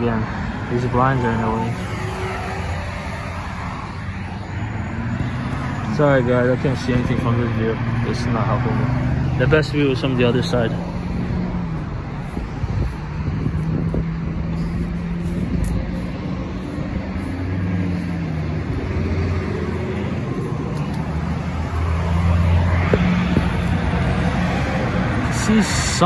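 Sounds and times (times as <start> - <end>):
cars passing on busy road: 0.0 - 26.0
deep engine hum: 1.2 - 25.6.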